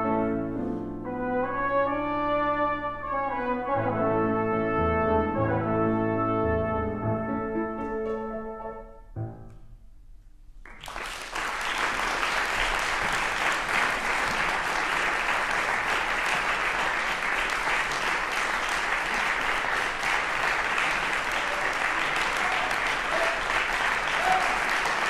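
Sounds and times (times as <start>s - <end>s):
trumpet trombone and piano chords: 0.0s - 9.5s
audience applause: 10.6s - 25.0s.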